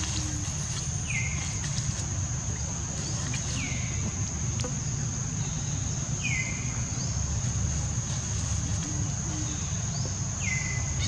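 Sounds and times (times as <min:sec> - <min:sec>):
insects buzzing drone: 0:00.0 - 0:11.0.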